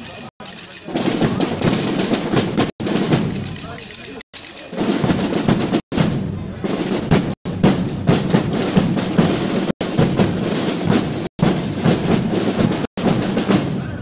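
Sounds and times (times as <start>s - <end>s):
snare drum rolls: 0.8s - 14.0s
bass drum beats: 0.9s - 4.1s, 4.8s - 14.0s.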